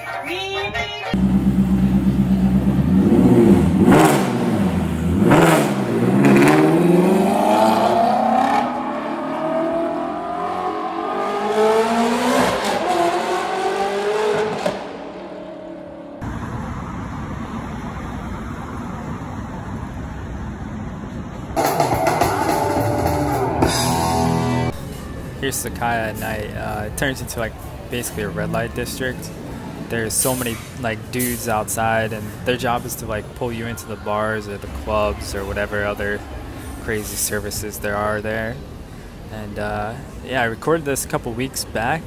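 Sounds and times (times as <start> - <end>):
city street noise: 0.0 - 42.0
sports car engine revving: 1.2 - 16.2.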